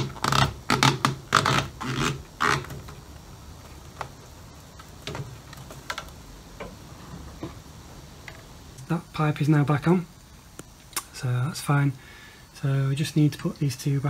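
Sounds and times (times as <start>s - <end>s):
rubber hose rubbing and creaking: 0.0s - 8.6s.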